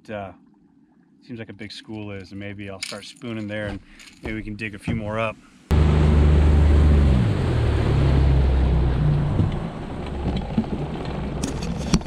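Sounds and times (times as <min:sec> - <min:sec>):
wind: 0:00.0 - 0:12.0
boat motor running: 0:05.7 - 0:12.0
water rushing: 0:05.7 - 0:12.0.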